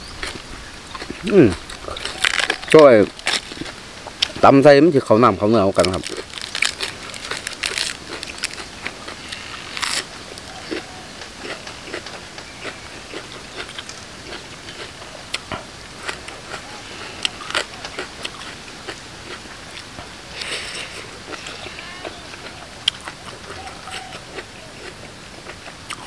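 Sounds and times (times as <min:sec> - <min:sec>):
crunching and chewing food: 0:00.0 - 0:26.0
sharp crackles and clicks: 0:05.5 - 0:16.6.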